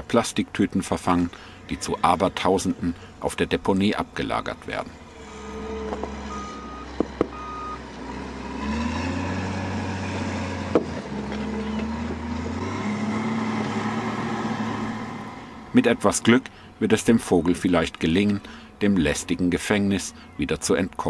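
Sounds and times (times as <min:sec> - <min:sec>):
heavy vehicle engine running: 0:00.0 - 0:20.6
reversing alarm beeps: 0:05.3 - 0:07.8.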